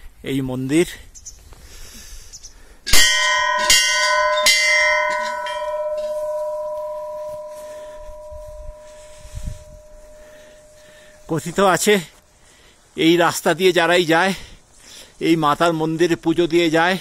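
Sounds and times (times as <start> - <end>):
metal temple bell ringing: 2.9 - 11.6.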